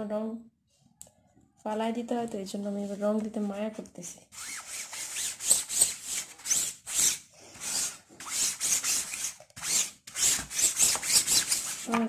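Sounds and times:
applicator scratching on stencil: 4.4s - 11.9s.

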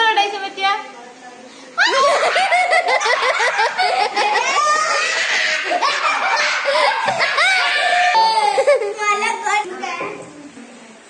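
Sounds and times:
excited talk: 0.0s - 10.2s
young people laughing and shrieking: 1.8s - 9.0s.

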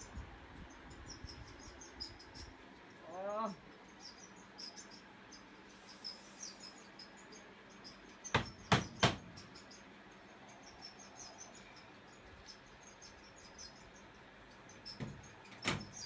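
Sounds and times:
crickets chirping: 0.7s - 8.6s, 9.3s - 16.0s.

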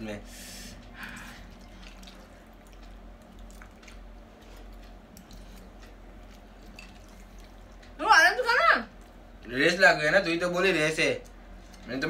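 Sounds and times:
chewing and slurping noodles: 1.0s - 8.0s.

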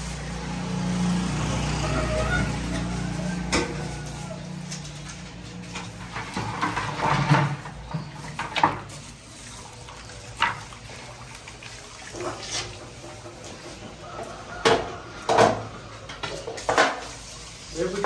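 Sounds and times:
liquid splashing and pouring: 6.1s - 13.9s.

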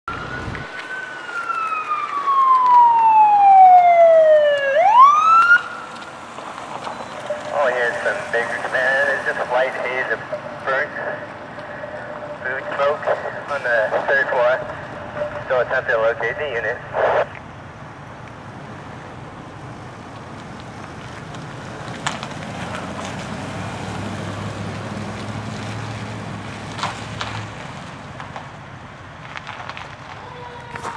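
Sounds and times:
vehicle siren wailing: 0.0s - 17.4s.

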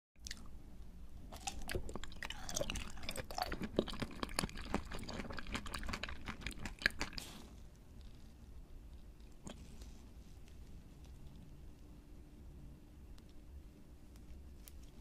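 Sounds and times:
wet mouth sounds: 1.3s - 7.6s
crunchy candy chewing: 1.3s - 8.2s.

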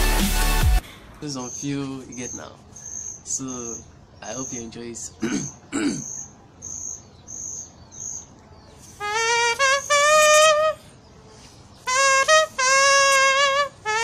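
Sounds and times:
man imitating a trumpet: 9.0s - 10.8s, 11.9s - 14.0s.

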